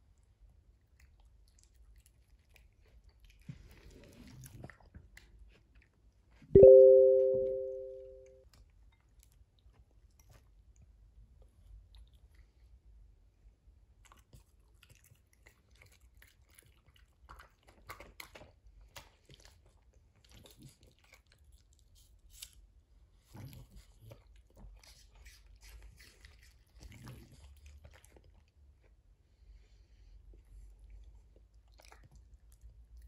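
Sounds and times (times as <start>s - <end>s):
chewing and crunching fruit: 13.9s - 29.1s, 30.4s - 33.0s.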